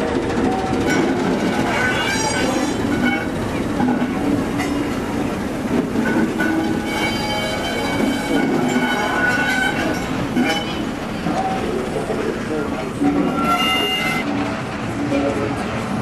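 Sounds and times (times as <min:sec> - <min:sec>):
train wheels clattering on rails: 0:00.0 - 0:16.0
high-pitched steady squeal: 0:06.0 - 0:11.7, 0:12.7 - 0:14.3.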